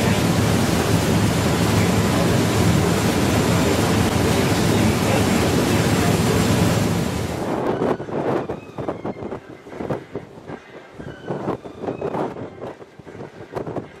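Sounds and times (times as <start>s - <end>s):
low engine hum: 0.0s - 7.5s
wind and water rushing: 0.0s - 14.0s.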